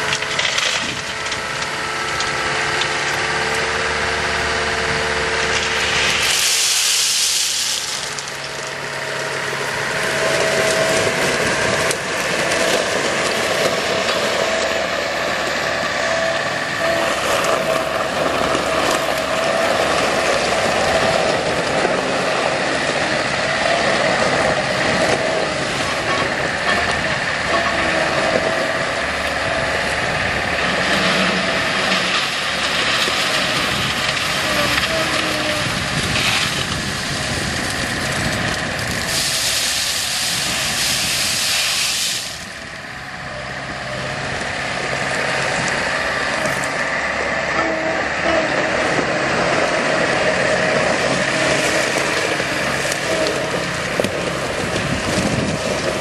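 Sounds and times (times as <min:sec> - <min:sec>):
diesel engine running: 0:00.0 - 0:56.0
loud hiss: 0:05.8 - 0:08.4, 0:39.0 - 0:42.6.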